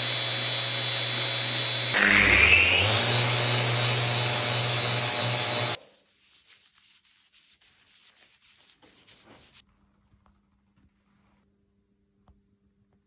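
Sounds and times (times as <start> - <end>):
orbital sander whirring: 0.0 - 5.8.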